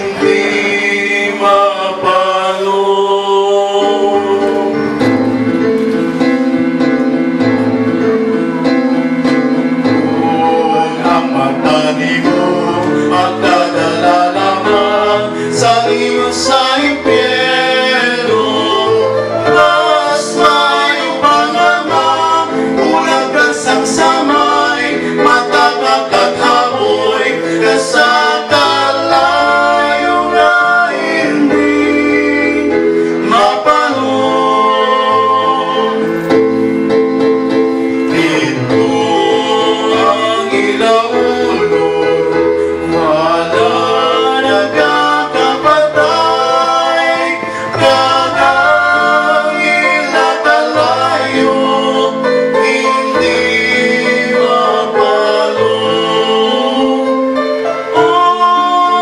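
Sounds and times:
men singing into microphones: 0.0 - 6.3, 9.3 - 36.9, 37.5 - 59.0
instrumental accompaniment: 0.0 - 59.0.

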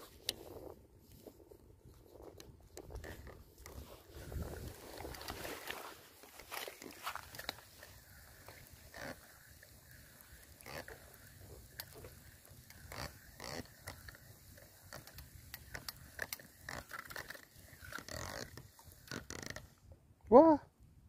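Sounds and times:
fishing reel clicks and rustles: 0.0 - 20.0
low wind rumble: 2.5 - 5.9.

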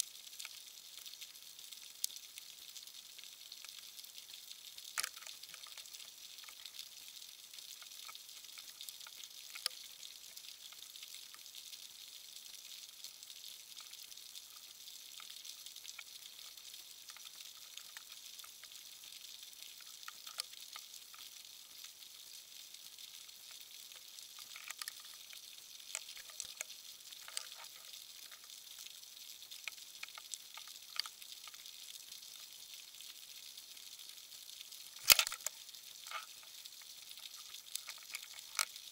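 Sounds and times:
sharp clicks and crackles: 4.8 - 6.8, 7.7 - 10.8, 15.2 - 18.8, 19.7 - 21.3, 23.5 - 28.9, 29.5 - 31.7, 35.0 - 38.9.

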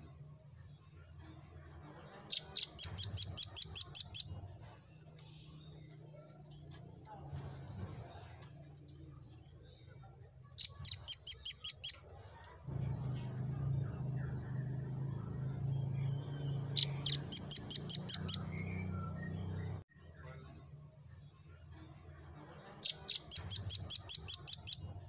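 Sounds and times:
bird singing high trills: 2.3 - 4.5, 10.6 - 12.0, 14.3 - 19.8, 22.8 - 25.0.

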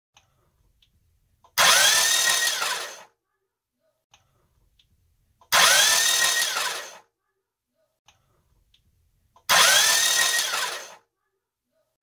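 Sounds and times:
starter motor cranking engine: 1.6 - 3.1, 5.5 - 7.0, 9.5 - 11.0.

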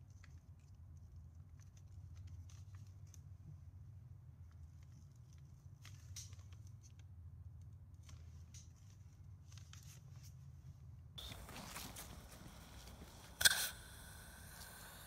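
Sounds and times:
fingers clicking and rustling paper: 0.0 - 3.5
steady low hum: 10.4 - 15.0
firework spraying sparks hiss: 11.2 - 15.0.

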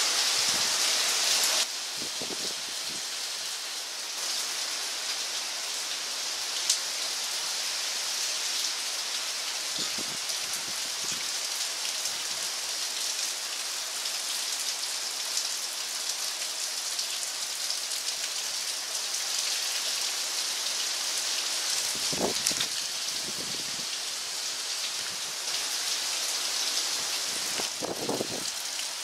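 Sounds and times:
heavy rain pattering: 21.7 - 29.0.

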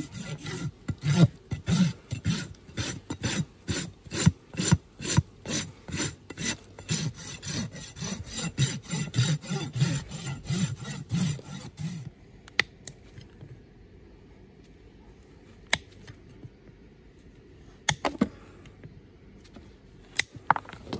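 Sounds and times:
rasp filing a hoof: 0.0 - 12.1.

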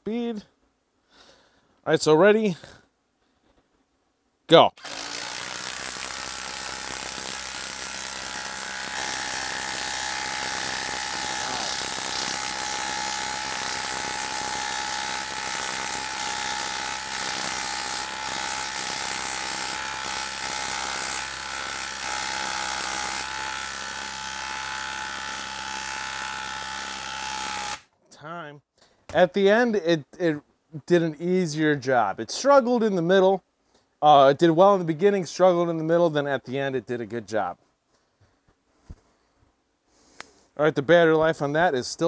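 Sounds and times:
impact driver hammering: 4.8 - 27.8.

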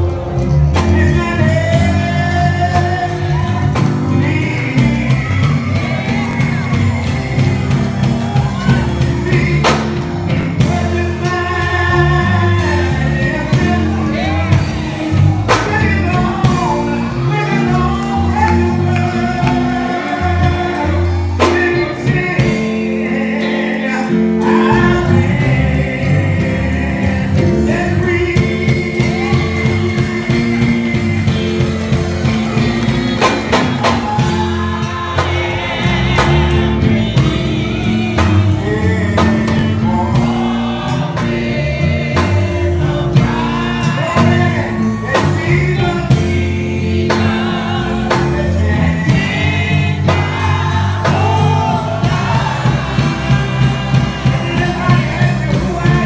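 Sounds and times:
instrumental accompaniment: 0.0 - 56.0
man singing gospel: 0.0 - 56.0
choir singing: 1.0 - 56.0.

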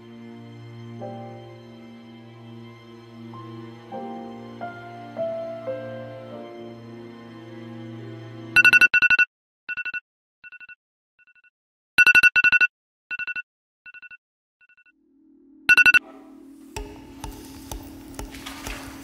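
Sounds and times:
phone ringtone beeps: 8.6 - 11.4, 12.0 - 14.9, 15.7 - 16.0.

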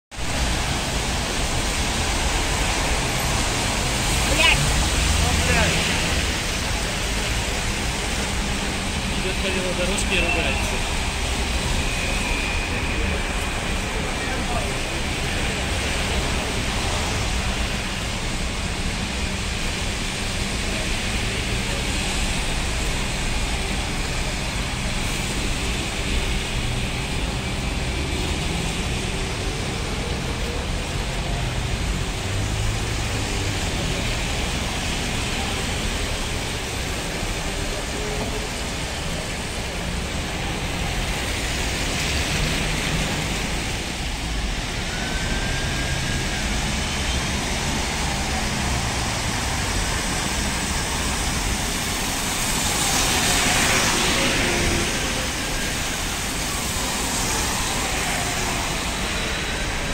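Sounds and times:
passing vehicles: 0.1 - 59.9
tyres hissing on wet road: 0.1 - 59.9
faint gliding whines: 10.6 - 15.4.

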